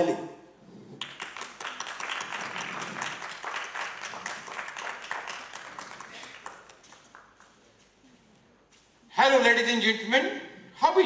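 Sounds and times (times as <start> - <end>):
group of people clapping: 0.9 - 8.0.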